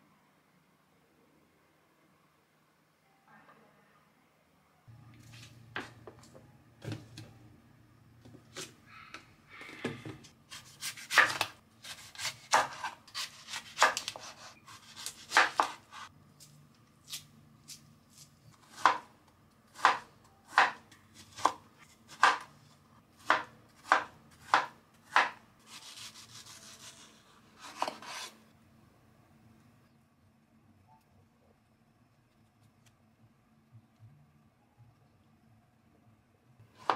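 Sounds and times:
knife chopping on wooden board: 0:10.6 - 0:16.0, 0:18.7 - 0:19.1, 0:19.8 - 0:22.5, 0:23.2 - 0:27.0.

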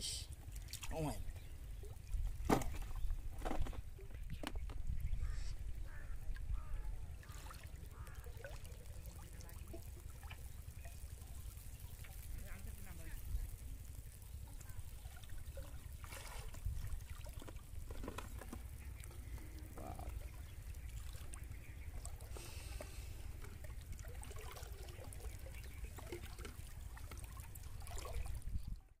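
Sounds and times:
water splashing and dripping: 0:00.3 - 0:04.8, 0:06.3 - 0:29.0.

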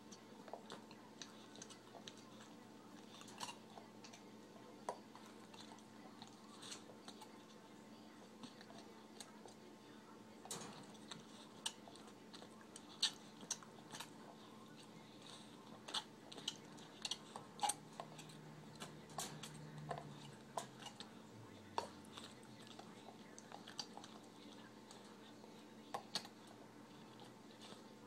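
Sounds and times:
dog chewing rubber toy: 0:10.8 - 0:28.0.

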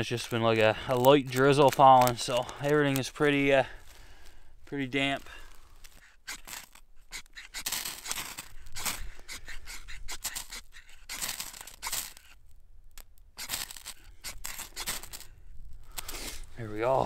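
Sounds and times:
ferro rod scraping: 0:00.0 - 0:17.0.

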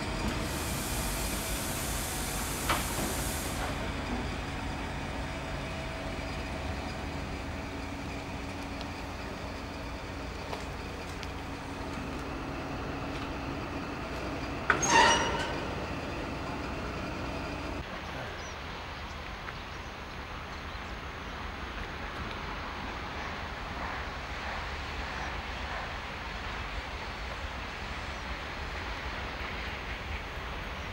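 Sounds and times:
diesel locomotive engine hum: 0:00.0 - 0:30.9
short high-pitched horn note: 0:14.8 - 0:15.5.

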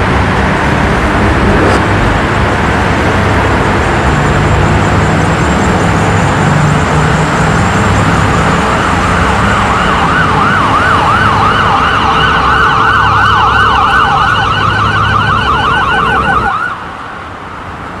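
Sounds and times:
heavy highway traffic rumble: 0:00.0 - 0:18.0
emergency siren yelping: 0:07.7 - 0:16.9.

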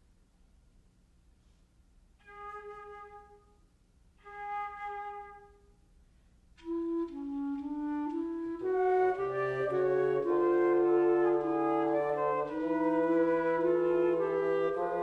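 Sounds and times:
wind instruments playing: 0:02.2 - 0:03.6, 0:04.2 - 0:05.7, 0:06.6 - 0:15.0.

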